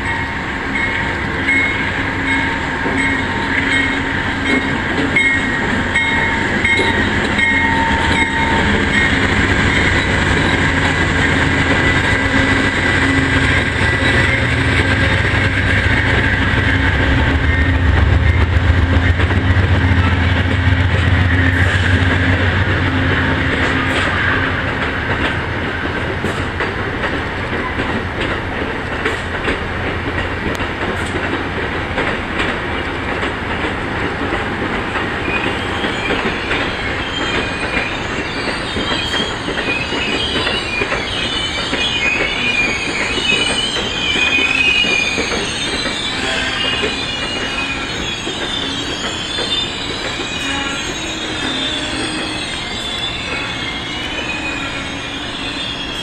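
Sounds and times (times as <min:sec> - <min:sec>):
wheel and brake squeal: 0:05.2 - 0:17.8, 0:35.2 - 0:56.0
wheels clicking over rail joints: 0:23.5 - 0:47.6.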